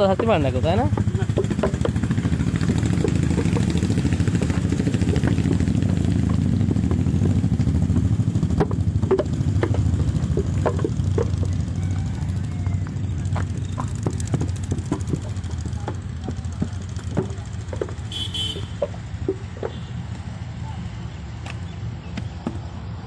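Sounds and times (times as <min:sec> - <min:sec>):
engine rumbling: 0:00.0 - 0:23.0.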